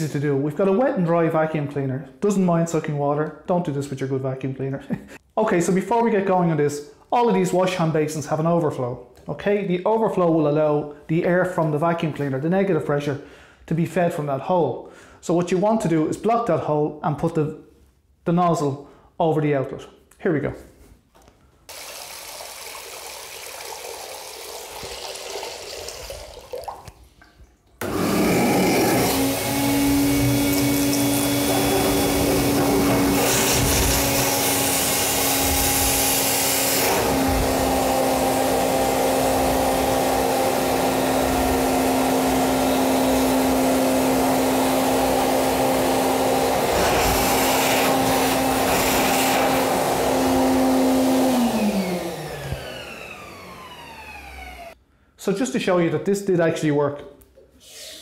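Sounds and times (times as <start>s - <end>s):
vacuum suction rush: 27.8s - 53.2s
shop vacuum motor hum: 27.8s - 54.8s.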